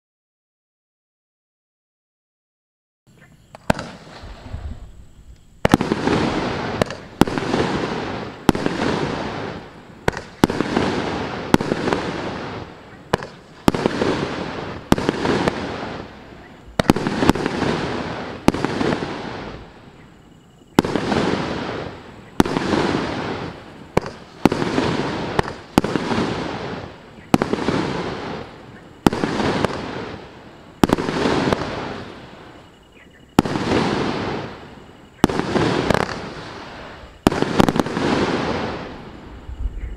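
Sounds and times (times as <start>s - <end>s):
firework shots banging: 3.5s - 16.1s, 16.8s - 19.6s, 20.8s - 32.2s, 35.2s - 39.0s.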